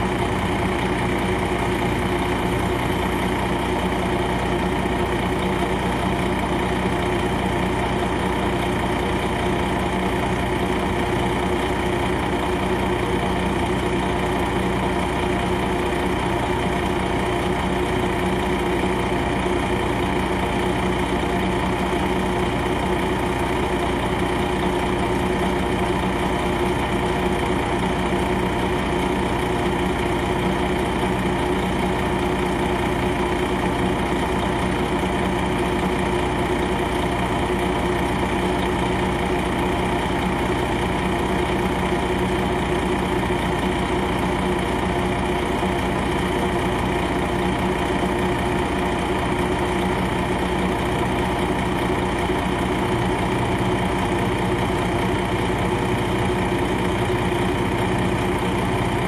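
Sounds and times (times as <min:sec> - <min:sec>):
diesel bus engine idling: 0:00.0 - 0:59.0.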